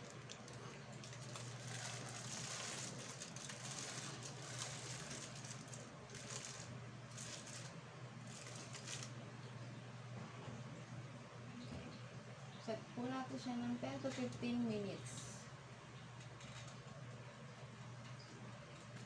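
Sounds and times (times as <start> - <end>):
foil rustling and crinkling: 0.0 - 9.2.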